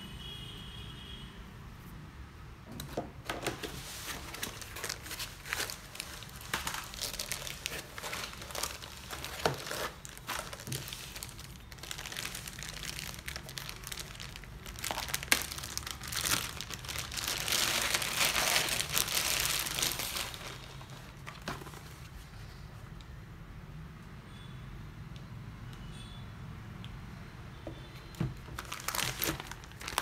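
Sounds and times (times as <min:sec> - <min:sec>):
plastic bag crinkling: 0:03.5 - 0:22.1, 0:28.4 - 0:30.0.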